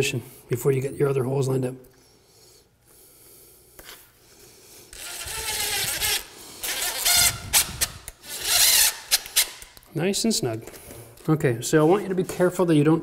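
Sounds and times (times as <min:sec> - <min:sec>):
cordless drill driving screws: 0:04.9 - 0:09.6.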